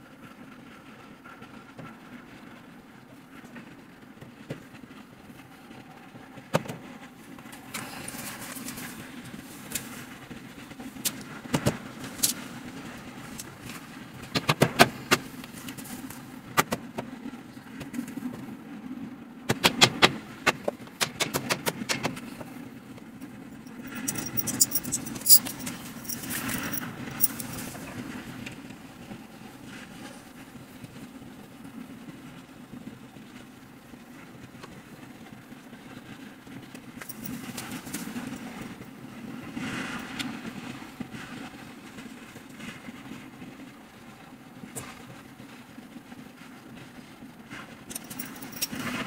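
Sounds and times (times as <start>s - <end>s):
steady low hum: 22.1s - 28.3s
scratchy rustle: 23.6s - 27.8s.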